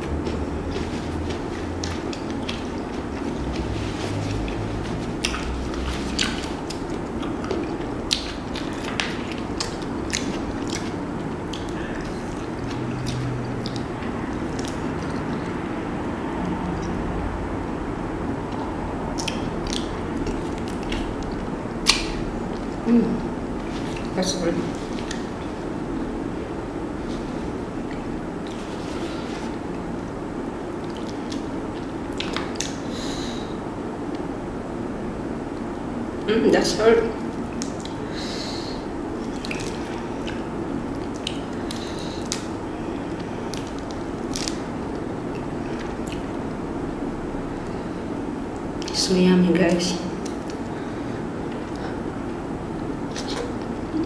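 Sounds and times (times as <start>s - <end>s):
eating and chewing sounds: 0.0s - 34.4s, 37.1s - 49.0s, 49.7s - 54.0s
low background noise: 0.0s - 54.0s
steady background hiss: 0.0s - 54.0s
wet squishing: 0.1s - 17.0s, 18.6s - 22.8s, 30.8s - 32.9s, 38.9s - 46.4s, 50.2s - 52.0s
sharp wet clicks: 19.2s - 22.7s, 39.3s - 42.5s, 43.5s - 44.6s.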